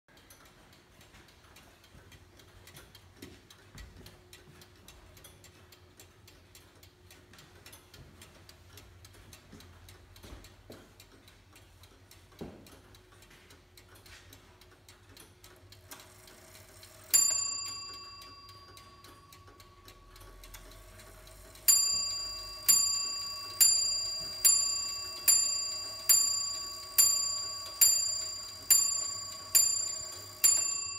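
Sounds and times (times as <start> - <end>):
clock ticking fast: 0.1 - 30.9
clock bell striking: 16.6 - 30.9.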